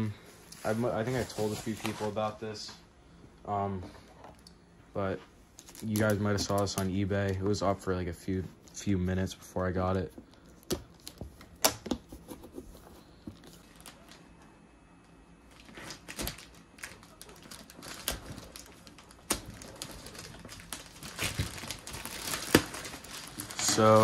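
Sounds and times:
plastic wrapping crinkling: 5.6 - 7.6, 12.2 - 14.2, 15.5 - 24.0
plastic mailer tearing: 15.6 - 24.0.

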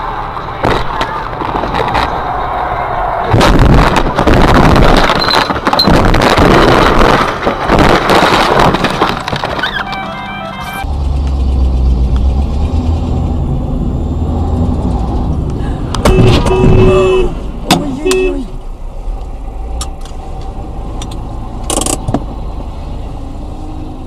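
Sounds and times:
road and engine rumble: 0.0 - 24.0
held tone: 9.6 - 10.9.

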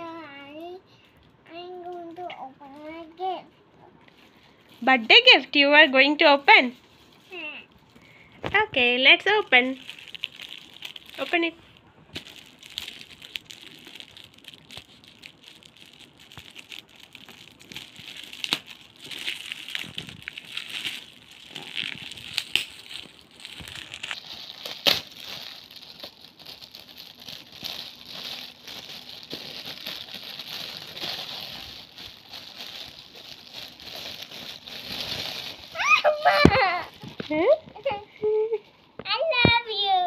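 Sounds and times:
foil wrap crinkling: 6.2 - 38.6
loud foil snap: 22.1 - 25.5.

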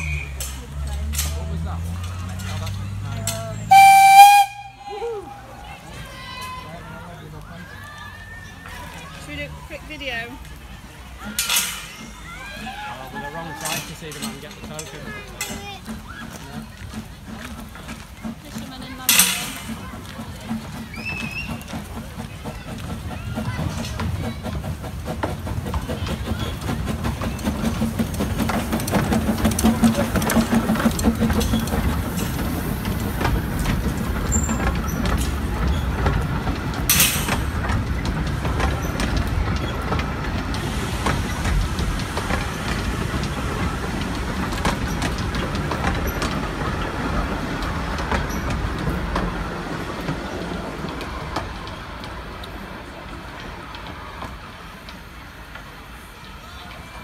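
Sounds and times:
steam train rolling past: 0.0 - 57.0
wheels clicking over rail joints: 0.0 - 57.0
steam hiss: 39.8 - 47.4.

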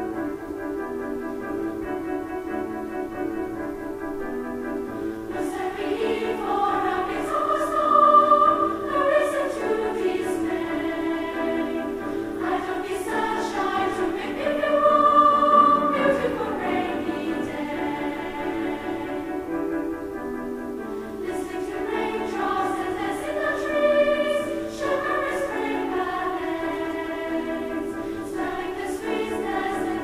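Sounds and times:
girls' treble choir singing: 5.2 - 19.8, 21.0 - 30.0.

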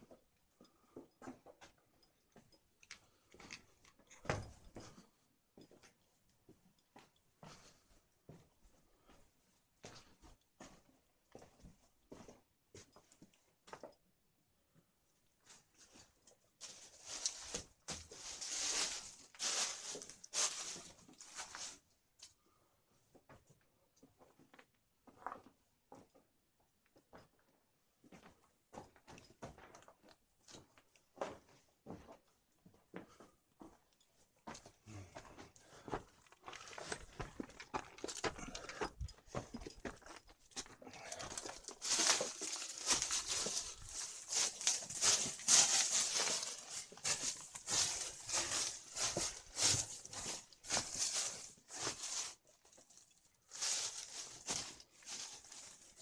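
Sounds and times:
crunching and scraping on rubble: 35.6 - 56.0.

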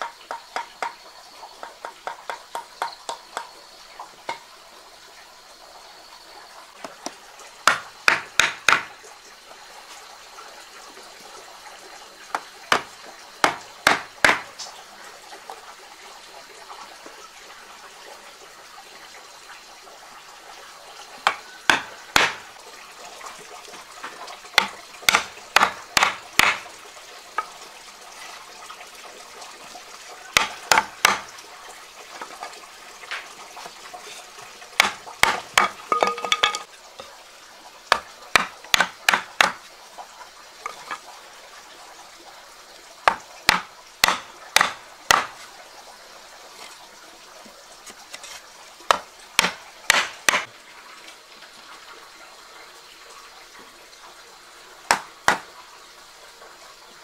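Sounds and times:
wood-on-metal knocks: 0.0 - 1.0, 7.7 - 8.9, 12.7 - 14.5, 21.2 - 22.4, 24.6 - 26.6, 30.4 - 31.3, 34.8 - 36.7, 37.9 - 39.6, 43.1 - 45.3.

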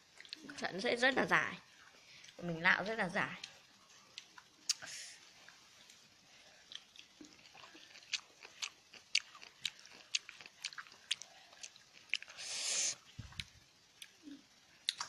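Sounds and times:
person chewing crunchy salad: 6.6 - 15.0.

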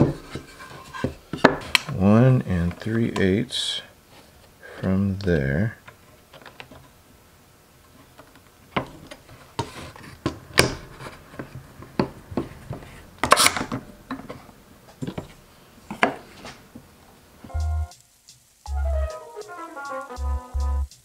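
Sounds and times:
wooden boards knocking and clacking: 0.0 - 1.9, 8.7 - 14.4.

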